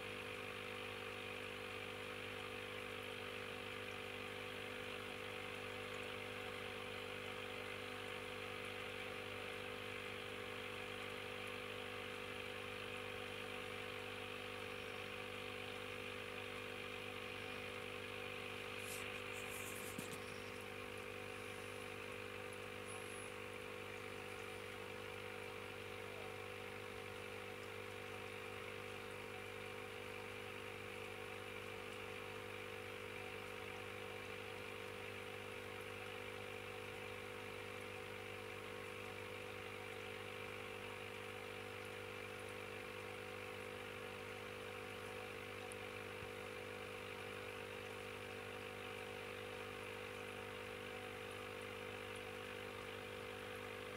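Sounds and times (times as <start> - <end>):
aquarium equipment humming: 0.0 - 53.9.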